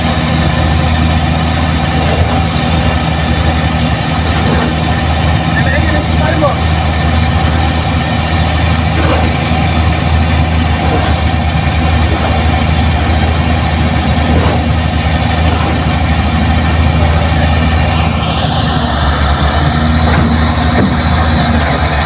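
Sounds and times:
excavator diesel engine humming: 0.0 - 22.0.

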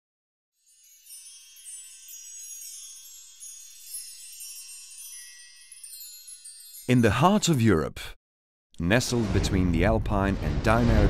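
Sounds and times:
high shimmering chime tones: 0.6 - 7.7.

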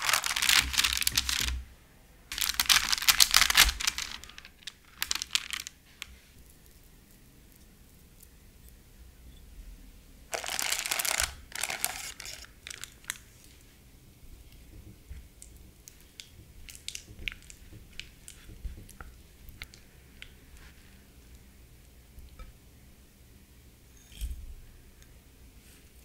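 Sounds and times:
dried fruit crunching: 0.0 - 1.6, 2.3 - 6.8, 10.3 - 13.2.

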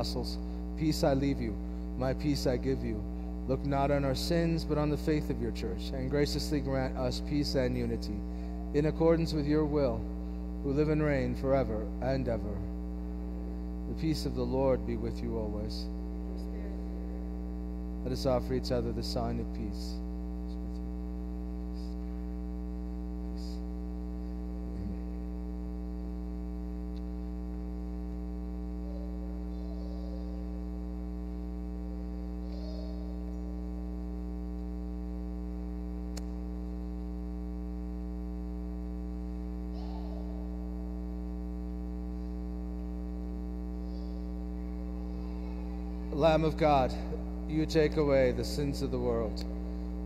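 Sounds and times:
electrical mains hum: 0.0 - 50.0
people quietly murmuring: 8.0 - 9.0, 15.9 - 17.6, 24.7 - 25.2, 28.6 - 33.8, 39.5 - 41.2, 43.7 - 48.3.

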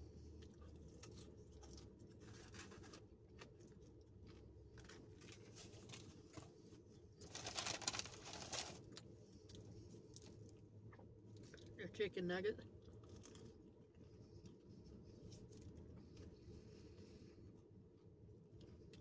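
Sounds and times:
chewing: 0.3 - 6.6, 8.9 - 11.8, 12.7 - 16.5
paper bag rustling: 7.2 - 8.9.

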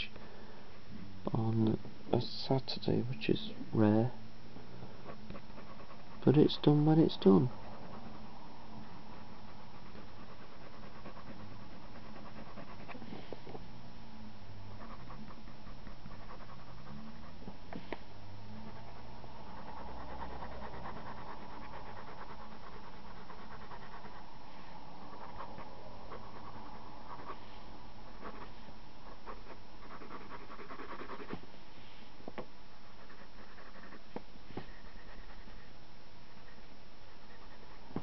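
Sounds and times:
pencil scratching on paper: 5.0 - 13.6, 14.6 - 24.4, 25.0 - 31.5, 32.8 - 38.0.

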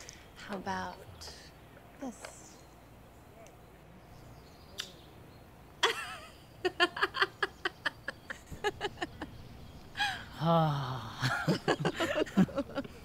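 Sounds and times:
man and woman laughing: 5.8 - 9.4, 11.0 - 13.0.

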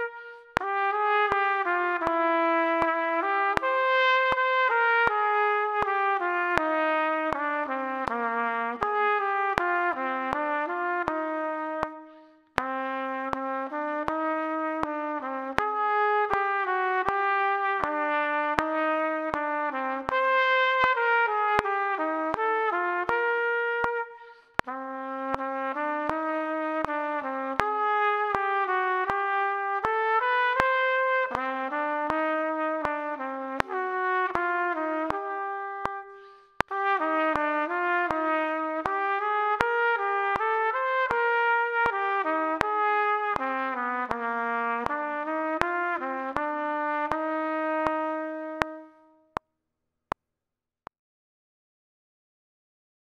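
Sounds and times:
solo trumpet melody: 0.0 - 49.4.

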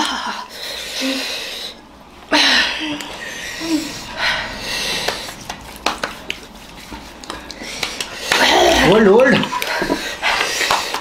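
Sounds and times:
people panting and hissing: 0.2 - 11.0
hand claps: 5.0 - 6.5, 7.2 - 8.6, 9.2 - 11.0.

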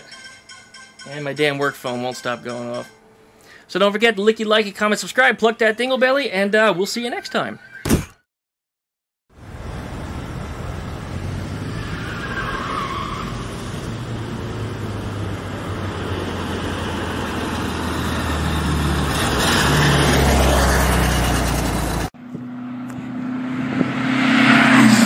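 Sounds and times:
engine revving up: 9.4 - 25.0.

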